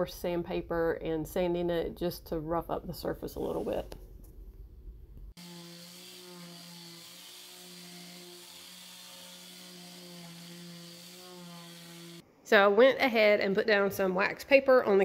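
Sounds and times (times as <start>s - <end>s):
electric sander on drywall: 5.4s - 12.2s.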